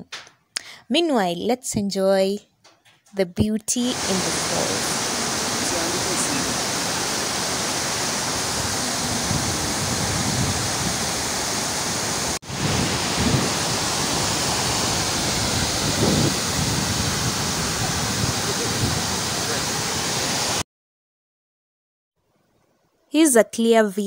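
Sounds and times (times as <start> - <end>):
waterfall roaring: 3.9 - 20.6.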